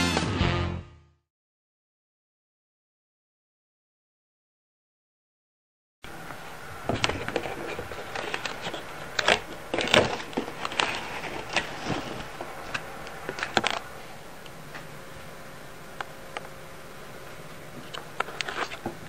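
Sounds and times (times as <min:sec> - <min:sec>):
faint room hum: 0:06.0 - 0:19.0.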